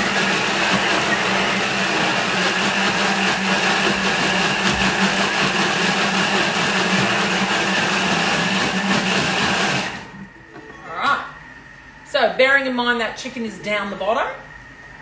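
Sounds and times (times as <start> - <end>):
food churning in blender: 0.0 - 10.2
food processor motor hum: 0.0 - 10.4.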